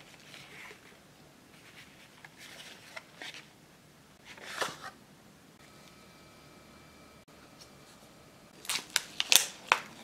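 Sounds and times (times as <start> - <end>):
cardboard and paper rustling: 1.6 - 3.5, 4.2 - 5.0.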